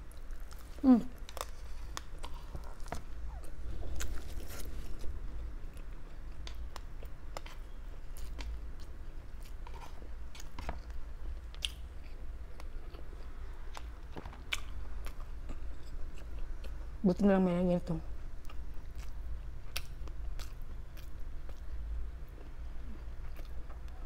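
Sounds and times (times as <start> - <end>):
low steady hum: 0.0 - 24.0
person chewing meat: 18.4 - 24.0.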